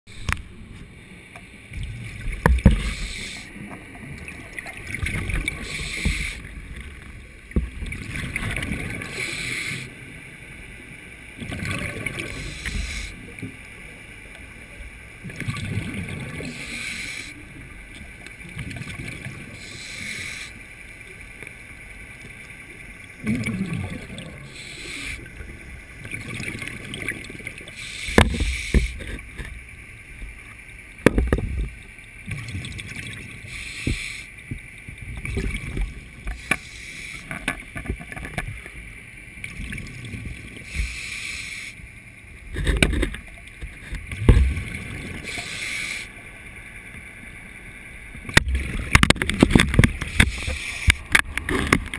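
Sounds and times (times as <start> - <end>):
diver breathing through regulator: 2.7 - 3.6, 5.4 - 6.5, 9.0 - 10.0, 12.2 - 13.2, 16.5 - 17.4, 19.5 - 20.6, 24.2 - 25.3, 27.7 - 29.2, 33.4 - 34.4, 36.3 - 37.5, 40.6 - 41.8, 45.2 - 46.2, 50.0 - 51.1
bubbling exhale: 5.4 - 6.4.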